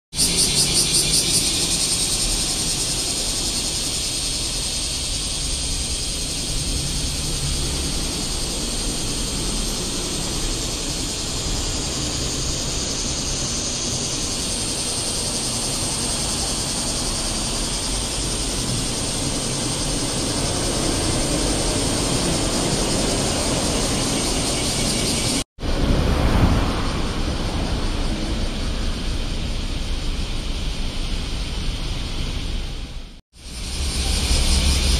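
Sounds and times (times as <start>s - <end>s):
cicadas buzzing: 0.1s - 34.9s
traffic passing: 0.2s - 33.1s.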